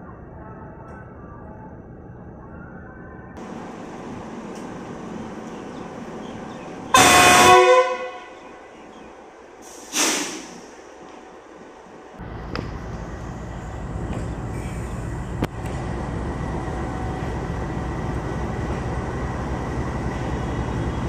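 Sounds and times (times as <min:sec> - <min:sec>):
locomotive horn blasts: 0:06.9 - 0:08.5.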